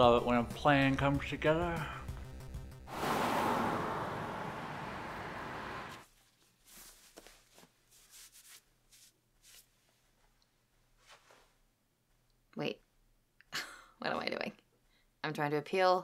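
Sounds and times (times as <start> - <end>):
car driving past: 2.9 - 6.0
clothing rustling: 6.0 - 11.7.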